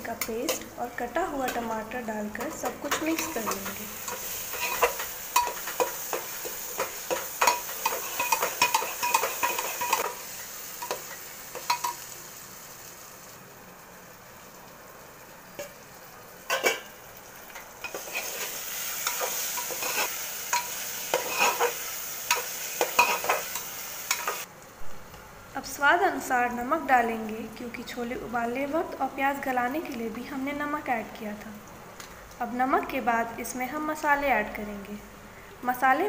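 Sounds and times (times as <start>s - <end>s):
masala sizzling: 0.0s - 36.0s
metal ladle scraping a pot: 3.2s - 5.9s, 17.8s - 21.8s.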